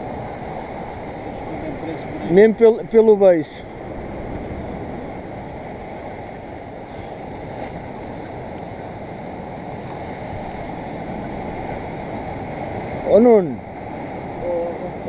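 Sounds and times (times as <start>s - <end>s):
sea surf on rocky shore: 0.0s - 15.0s
wind: 0.0s - 15.0s.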